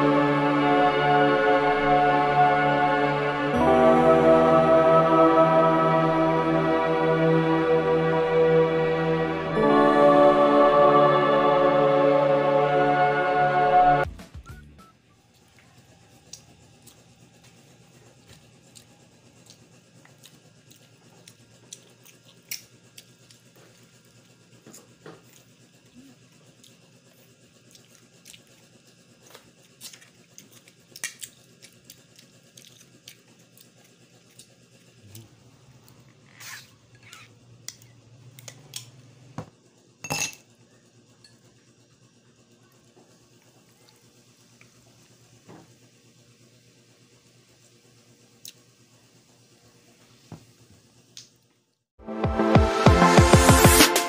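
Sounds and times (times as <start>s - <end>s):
glassy clink: 40.1s - 40.4s
spoon clinking on ceramic plates: 40.1s - 40.4s.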